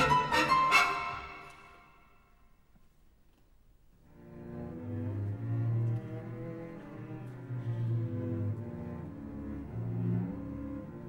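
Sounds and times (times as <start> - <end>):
cello bowing low notes: 4.0 - 11.0.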